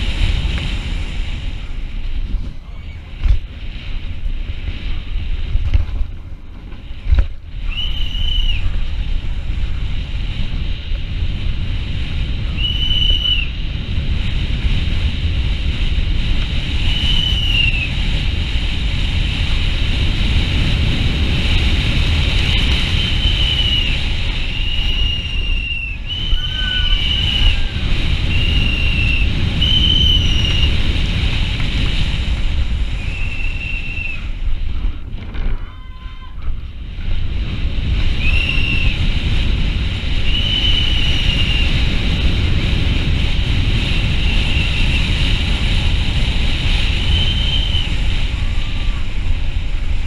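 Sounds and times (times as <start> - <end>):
bike road noise on cobblestones: 0.0 - 50.0
wind on microphone: 0.0 - 50.0
high whistle-like tones: 7.6 - 8.7, 12.6 - 13.5, 16.8 - 17.9, 22.8 - 30.8, 33.0 - 34.4, 38.2 - 39.0, 40.2 - 41.8, 47.0 - 48.1.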